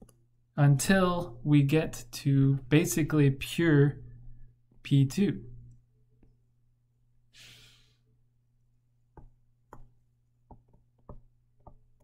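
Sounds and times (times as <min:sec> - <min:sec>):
low electrical hum: 0:00.0 - 0:12.0
short breathy hiss: 0:07.4 - 0:08.0
stylus tapping on tablet screen: 0:09.1 - 0:12.0.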